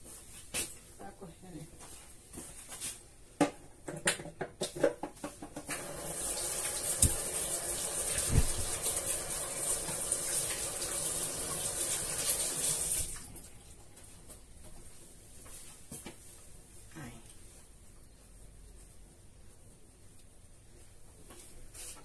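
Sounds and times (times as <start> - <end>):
tap water splashing into sink: 5.7 - 13.3
hands washing under water: 5.8 - 13.3.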